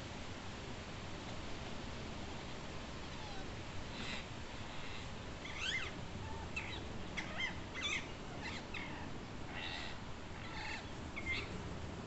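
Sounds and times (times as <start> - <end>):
parakeets calling: 4.8 - 11.5.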